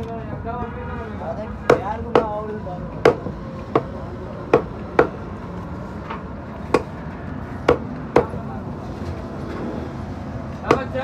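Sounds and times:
knife chopping on wooden block: 0:03.0 - 0:03.9.

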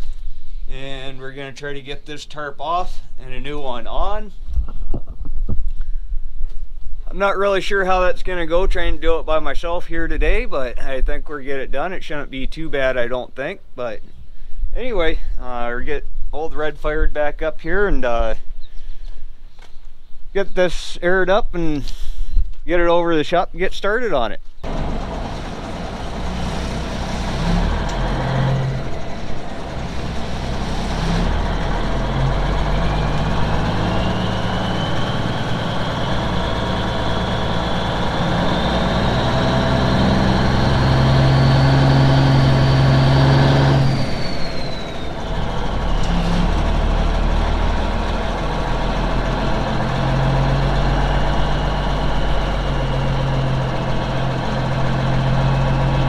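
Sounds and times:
engine whine: 0:24.6 - 0:56.0
truck diesel engine: 0:24.6 - 0:56.0.

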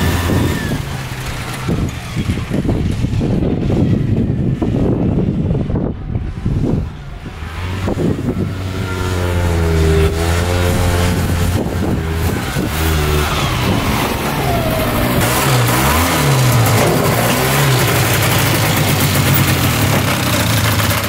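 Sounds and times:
two-stroke atv engine running: 0:00.0 - 0:05.8, 0:07.4 - 0:21.0.

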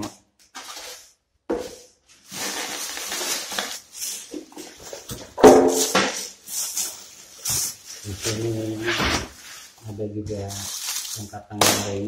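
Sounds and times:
plastic wrapping crinkling: 0:02.0 - 0:12.0
foam packing squeaking: 0:02.3 - 0:05.1, 0:06.4 - 0:11.4.

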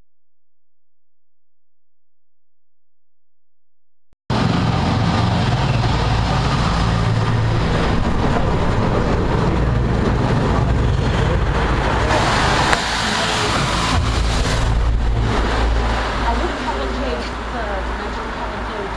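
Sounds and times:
lorry diesel engine drone: 0:04.3 - 0:18.9
traffic noise: 0:04.3 - 0:18.9.

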